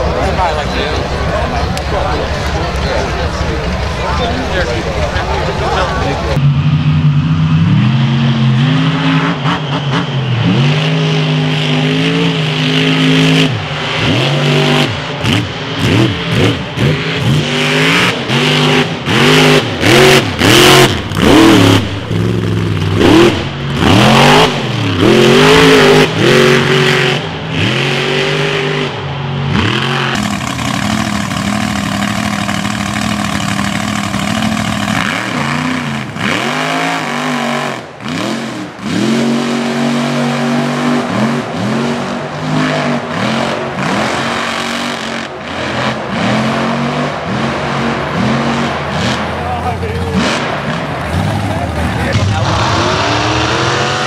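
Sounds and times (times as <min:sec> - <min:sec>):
truck engines revving: 0:00.0 - 0:54.0.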